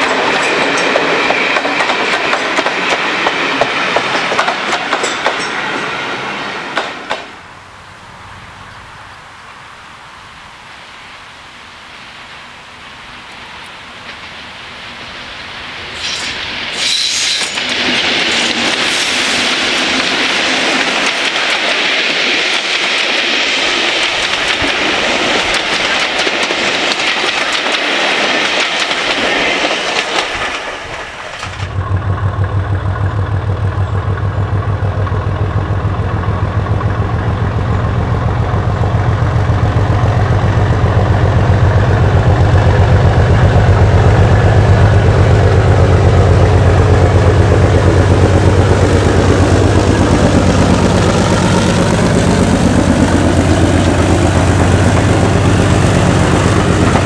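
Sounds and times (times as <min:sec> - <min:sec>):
wheels clicking over rail joints: 0:00.0 - 0:05.7, 0:17.4 - 0:57.0
diesel locomotive engine: 0:00.0 - 0:57.0.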